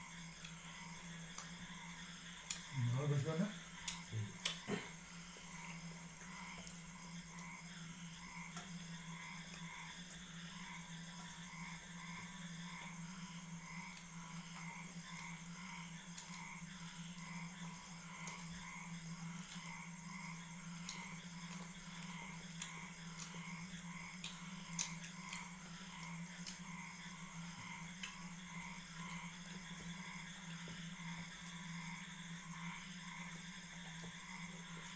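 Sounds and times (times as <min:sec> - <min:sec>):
steady low hum: 0:00.0 - 0:34.9.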